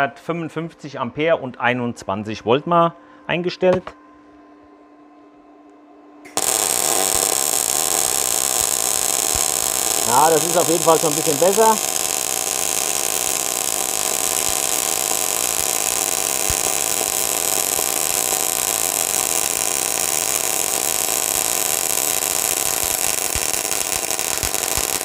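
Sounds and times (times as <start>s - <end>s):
welding arc hissing: 6.3s - 25.0s.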